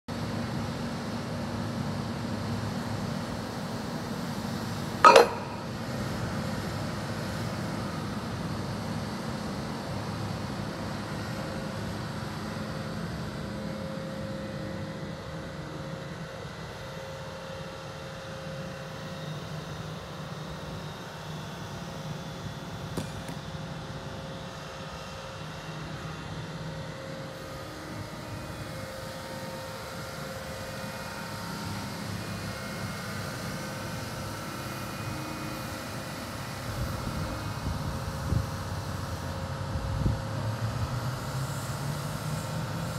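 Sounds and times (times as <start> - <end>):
loud metal clank: 5.0 - 5.8.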